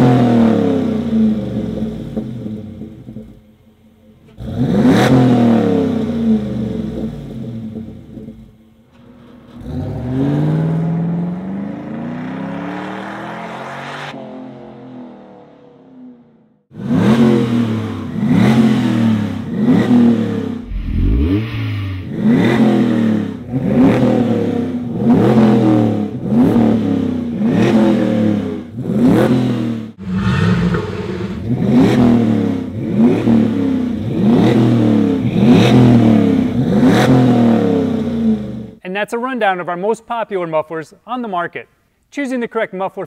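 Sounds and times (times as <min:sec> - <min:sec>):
engine exhaust revving: 0:04.2 - 0:08.6, 0:09.3 - 0:16.0, 0:16.7 - 0:38.8.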